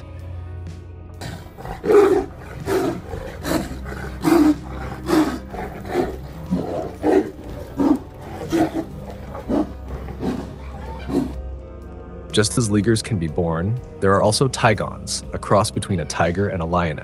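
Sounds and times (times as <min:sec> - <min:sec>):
big cats roaring: 0:01.2 - 0:11.4.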